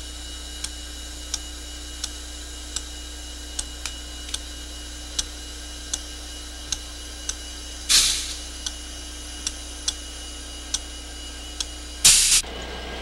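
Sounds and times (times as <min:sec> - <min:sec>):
steady hum: 0:00.0 - 0:13.0
short hiss: 0:07.9 - 0:08.4, 0:12.0 - 0:12.4.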